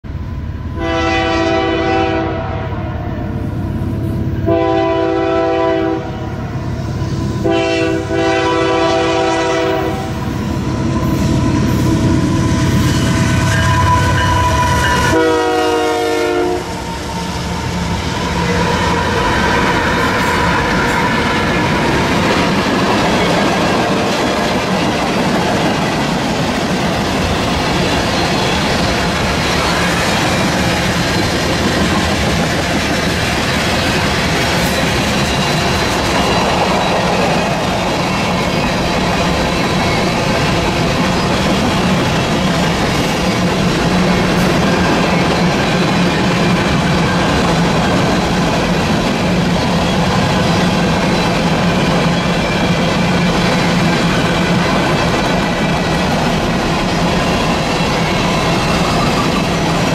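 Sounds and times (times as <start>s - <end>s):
diesel locomotive engines rumbling: 0.0s - 59.9s
train horn blasts: 0.7s - 3.1s, 4.4s - 6.5s, 7.4s - 17.6s
train wheels clacking on rails: 7.4s - 59.9s.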